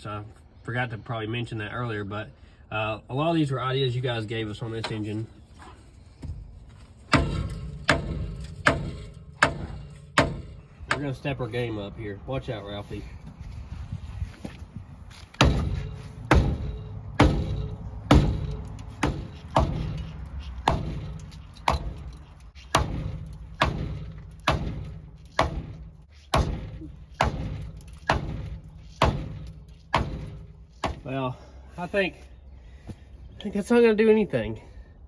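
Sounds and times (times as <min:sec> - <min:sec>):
heavy hammer blows on metal: 0:07.1 - 0:11.4, 0:15.3 - 0:31.1.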